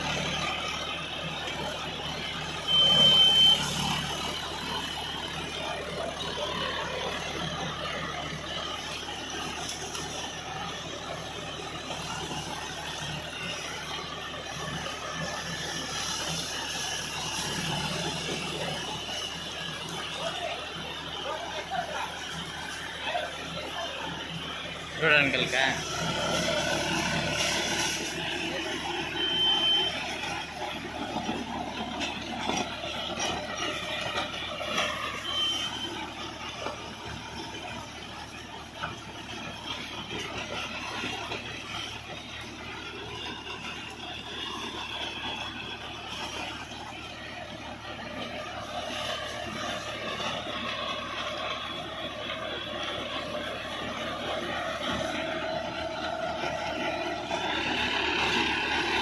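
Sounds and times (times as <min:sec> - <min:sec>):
diesel tractor engine running: 0:00.0 - 0:59.0
rotavator blades churning soil: 0:21.4 - 0:59.0.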